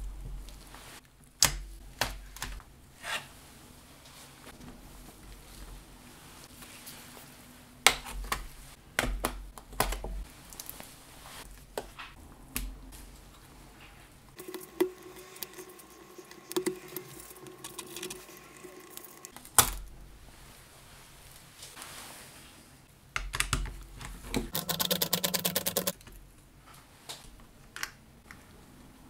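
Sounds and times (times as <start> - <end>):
faint steady hum: 0.0 - 21.8.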